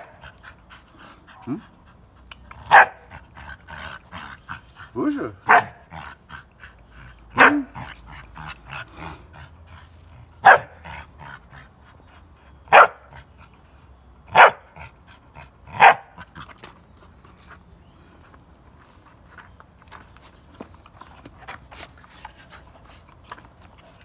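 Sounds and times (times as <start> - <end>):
puppy barking: 2.7 - 3.1, 5.4 - 5.8, 7.4 - 7.8, 10.4 - 10.8, 12.7 - 13.0, 14.3 - 14.7, 15.8 - 16.1.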